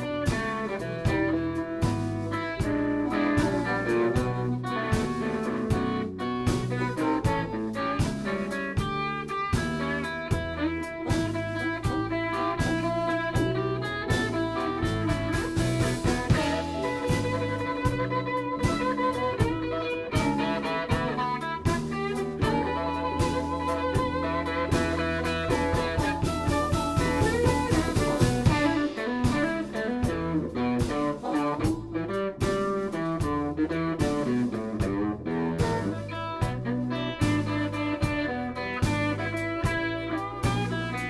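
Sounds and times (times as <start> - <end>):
harmonica long held notes: 0.0 - 30.6
bass guitar: 0.0 - 41.0
drum kit steady beat: 0.0 - 41.0
electric guitar: 0.0 - 41.0.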